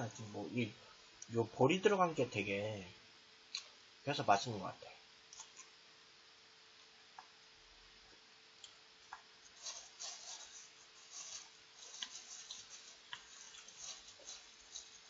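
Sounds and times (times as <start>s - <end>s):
faint steady hum: 0.0s - 15.0s
chewing sounds: 11.8s - 15.0s.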